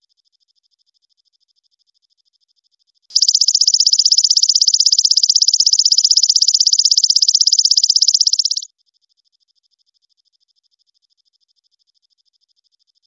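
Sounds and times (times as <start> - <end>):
katydid high-pitched trill: 3.1 - 8.7.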